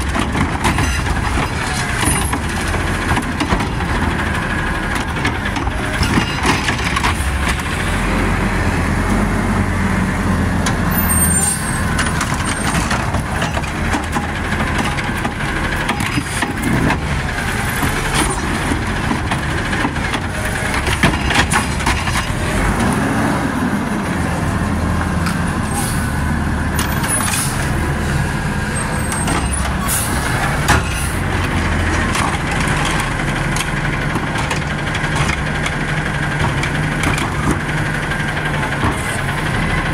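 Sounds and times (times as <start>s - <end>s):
clanks and knocks of cart: 0.0s - 8.0s, 10.6s - 23.2s, 28.6s - 39.9s
garbage truck engine revving: 0.0s - 39.9s.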